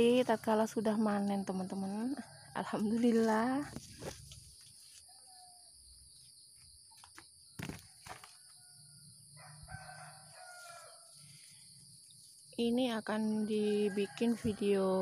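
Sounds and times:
rooster crowing faintly: 8.6 - 11.2.

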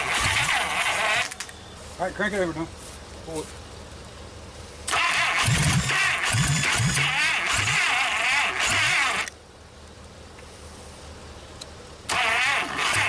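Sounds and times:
engine starter cranking: 0.0 - 1.5, 4.9 - 9.4, 12.1 - 13.0.

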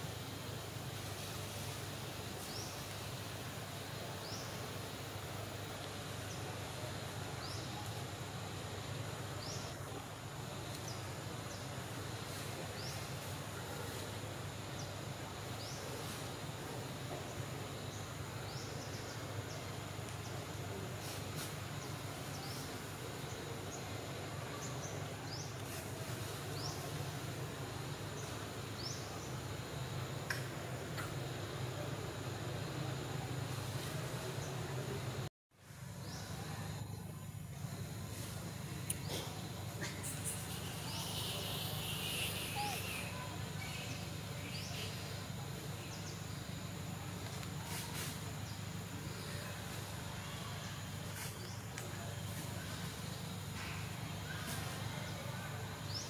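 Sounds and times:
steady hiss and low hum: 0.0 - 56.0.

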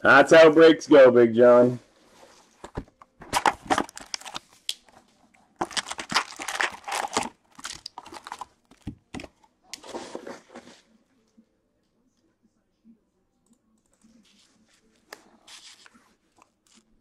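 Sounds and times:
foil wrappers crinkling: 3.3 - 4.6, 5.6 - 9.0.

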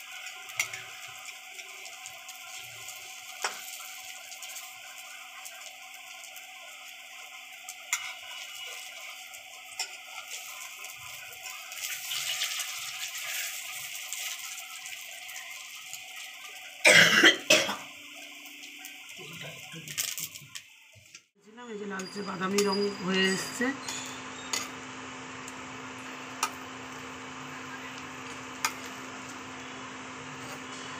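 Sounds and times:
oil sizzling: 0.0 - 30.9
person coughing: 16.8 - 17.9.

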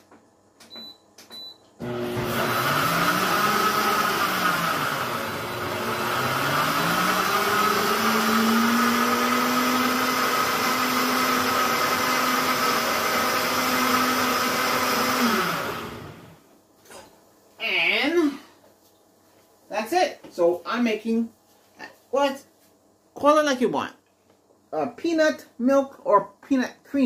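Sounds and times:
blender grinding: 1.8 - 16.4.

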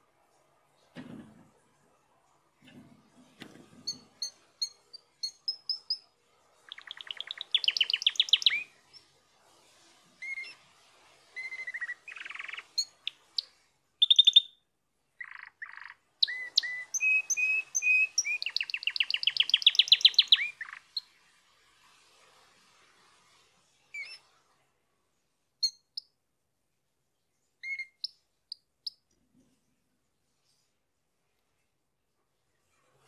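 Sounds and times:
canary singing whistled trills: 3.9 - 6.0, 6.7 - 9.0, 11.4 - 14.6, 15.2 - 21.1, 27.6 - 29.0.

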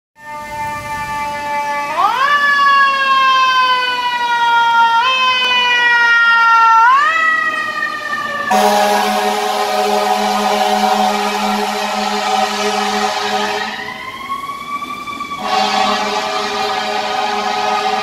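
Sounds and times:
fire engine siren: 0.2 - 18.0
loud air horn blast: 8.5 - 13.9, 15.4 - 18.0.

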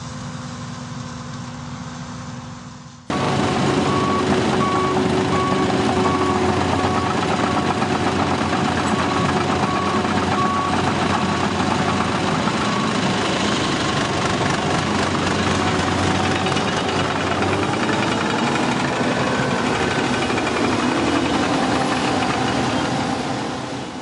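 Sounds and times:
combine harvester engine running: 0.0 - 24.0
back-up alarm beeping: 3.1 - 7.8, 8.4 - 13.1.

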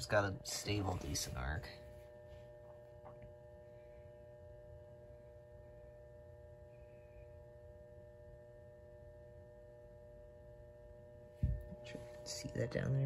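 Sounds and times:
lamp ballast humming: 0.0 - 13.0.

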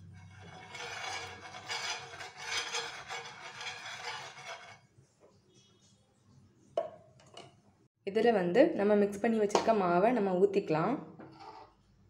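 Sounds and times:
steel spoon scraping a pan: 0.0 - 4.9, 11.3 - 11.8.

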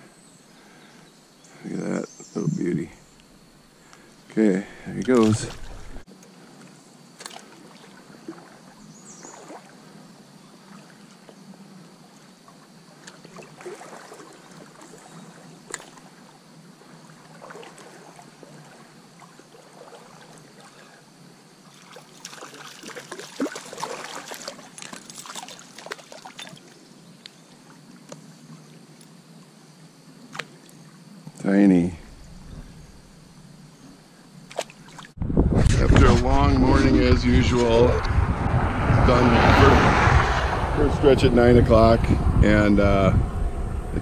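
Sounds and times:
stream water trickling: 4.9 - 31.2, 32.0 - 35.2.

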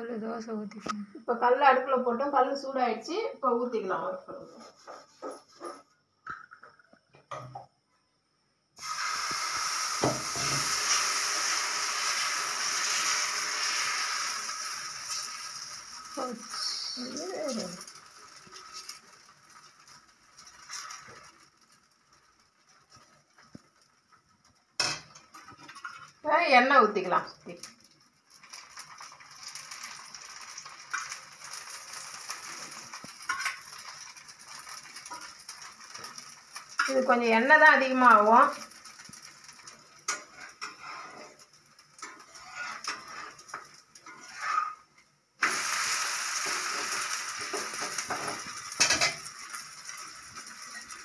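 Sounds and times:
batter sizzling on a griddle: 8.8 - 51.0.

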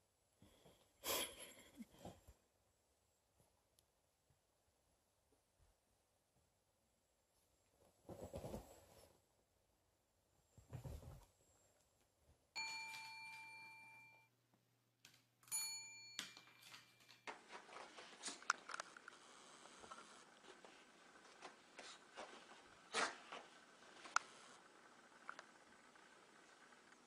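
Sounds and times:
bell ringing: 12.6 - 14.3, 15.4 - 17.3.

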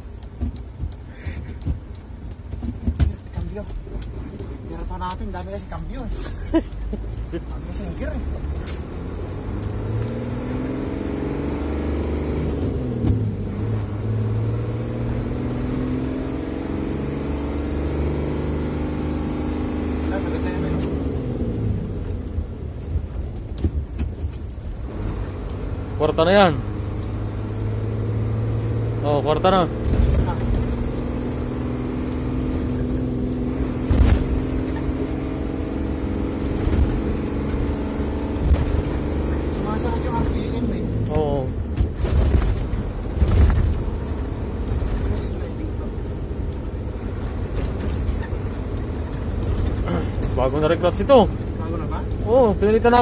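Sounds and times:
diesel truck engine pulling through gears: 0.0 - 53.0
gear change knock: 0.2 - 6.0
low thumps: 29.7 - 39.6, 40.2 - 45.1.

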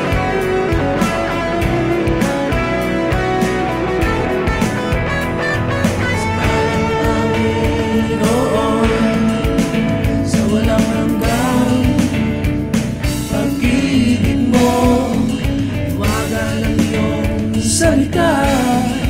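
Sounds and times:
guitar and band accompaniment: 0.0 - 19.0
man singing gospel song: 6.1 - 12.4, 13.2 - 19.0.

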